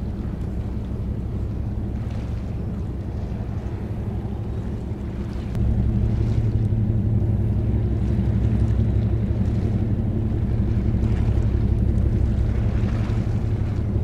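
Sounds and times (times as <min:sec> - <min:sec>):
ship diesel engines droning: 0:00.0 - 0:14.0.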